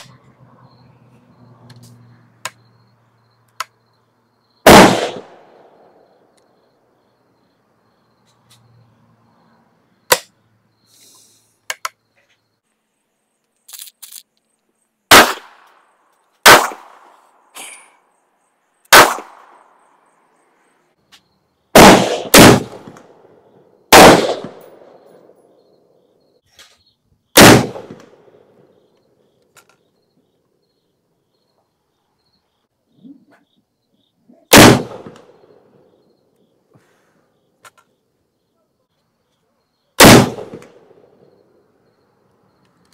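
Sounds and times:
loud rifle gunshots: 4.6s - 5.8s, 15.1s - 15.7s, 16.4s - 17.1s, 18.9s - 19.6s, 21.7s - 23.1s, 23.9s - 25.0s, 27.4s - 28.3s, 34.5s - 35.3s, 40.0s - 41.0s.

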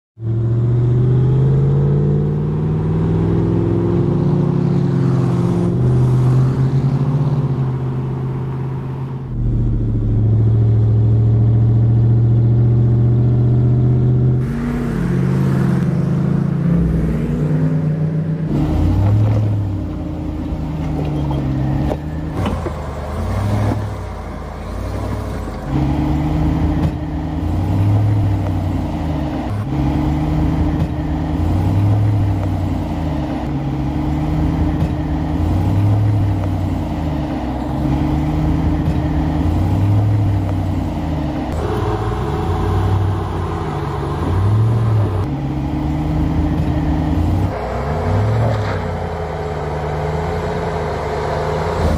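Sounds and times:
pickup engine revving: 0.2s - 51.9s.

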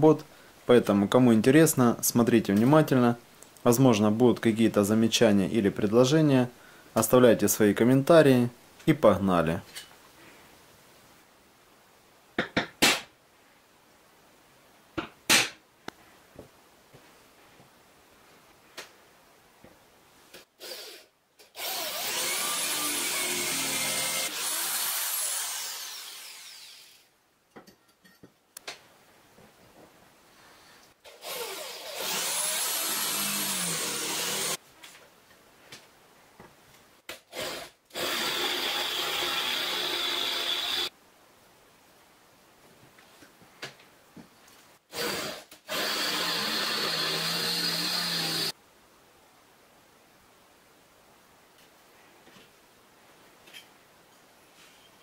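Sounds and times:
cordless drill drilling through metal: 20.6s - 27.1s, 31.1s - 34.6s, 37.3s - 40.9s, 44.9s - 48.5s.

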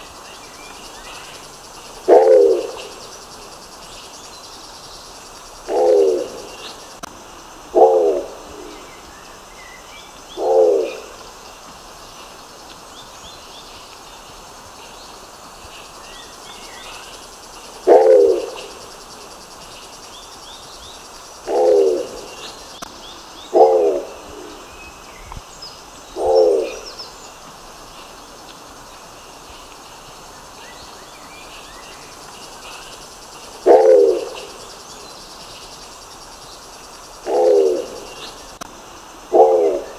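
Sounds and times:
insects hissing: 0.0s - 39.9s
pigeon calling: 17.8s - 18.7s, 21.4s - 22.2s.

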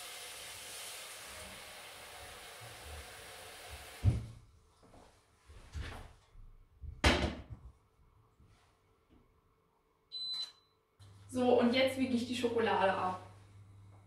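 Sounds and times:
tap running water into pot: 0.0s - 4.2s.

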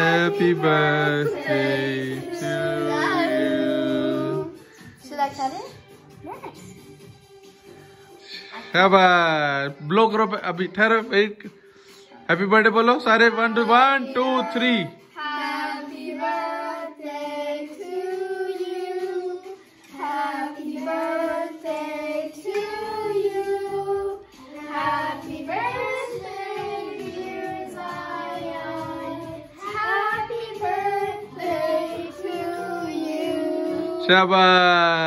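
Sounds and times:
children singing in unison: 0.0s - 4.6s, 14.6s - 34.1s.

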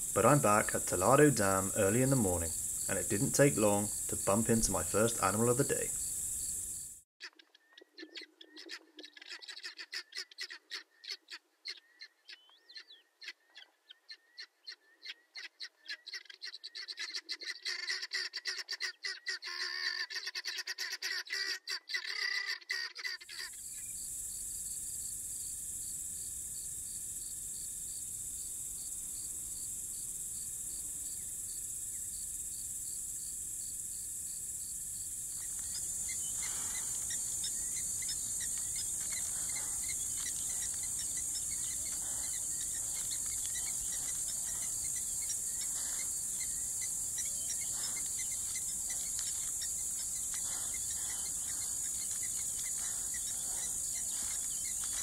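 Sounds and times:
insects chorus: 0.0s - 7.0s, 23.3s - 55.0s
bird calls: 0.0s - 24.0s, 35.3s - 55.0s.

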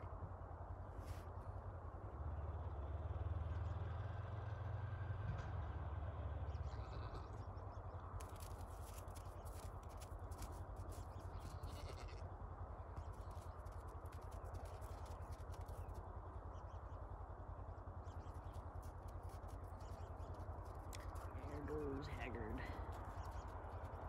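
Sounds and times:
steady low rumble: 0.0s - 3.9s, 4.8s - 24.0s
farm animals calling: 6.5s - 7.5s, 8.2s - 12.3s.

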